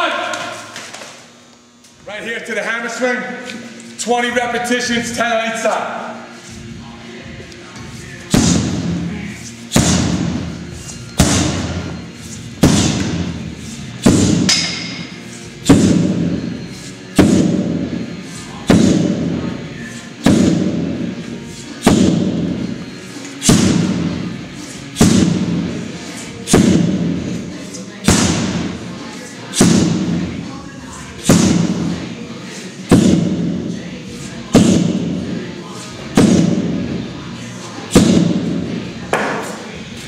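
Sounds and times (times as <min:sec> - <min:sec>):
sledgehammer striking tire: 0:08.3 - 0:09.0, 0:09.7 - 0:10.5, 0:11.2 - 0:12.0, 0:12.6 - 0:13.4, 0:14.0 - 0:16.4, 0:17.2 - 0:17.9, 0:18.6 - 0:19.3, 0:20.2 - 0:20.9, 0:21.8 - 0:22.6, 0:23.4 - 0:24.1, 0:25.0 - 0:25.7, 0:26.5 - 0:27.2, 0:28.0 - 0:28.8, 0:29.6 - 0:30.2, 0:31.2 - 0:32.0, 0:32.9 - 0:33.6, 0:34.5 - 0:35.2, 0:36.2 - 0:36.8, 0:37.9 - 0:38.5.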